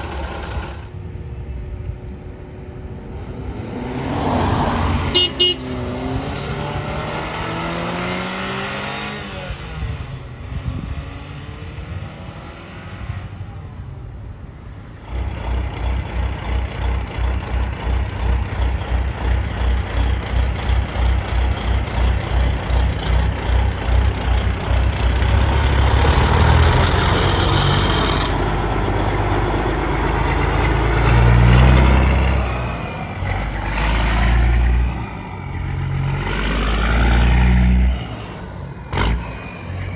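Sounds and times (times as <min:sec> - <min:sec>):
truck diesel exhaust rumble: 0:00.0 - 0:03.7, 0:13.2 - 0:39.9
small truck engine revving: 0:02.9 - 0:13.4, 0:20.5 - 0:39.9.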